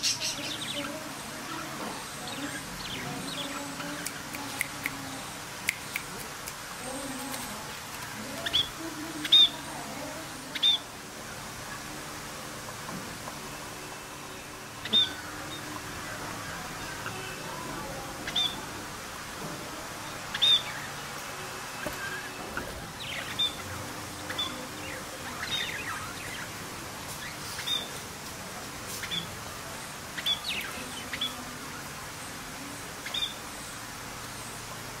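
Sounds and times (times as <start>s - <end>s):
steady background hiss: 0.0s - 35.0s
budgerigars chirping: 14.8s - 15.7s, 18.2s - 18.6s, 23.0s - 26.6s, 27.2s - 28.0s, 30.2s - 31.4s.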